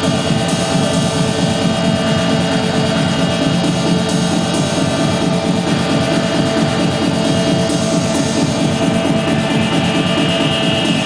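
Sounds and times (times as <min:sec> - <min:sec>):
fast-pulsing low rumble: 0:00.0 - 0:11.0
harsh noise wall: 0:00.0 - 0:11.0
steady mid-pitched drone: 0:00.0 - 0:11.0.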